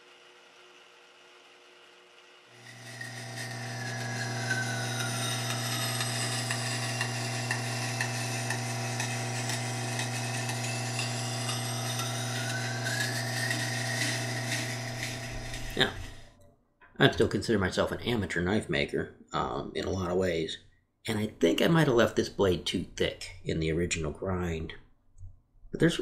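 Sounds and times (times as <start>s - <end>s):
bench grinder running: 0.0s - 16.3s.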